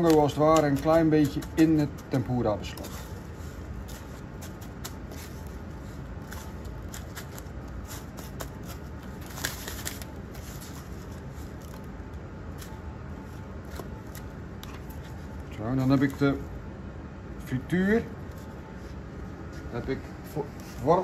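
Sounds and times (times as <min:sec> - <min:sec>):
breadcrumbs crunching: 0:00.0 - 0:16.3
low steady hum: 0:00.0 - 0:21.0.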